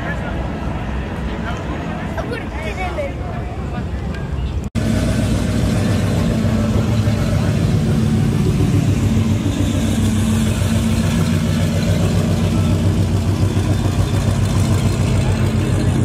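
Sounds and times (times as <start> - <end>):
engine idling: 4.8 - 16.0.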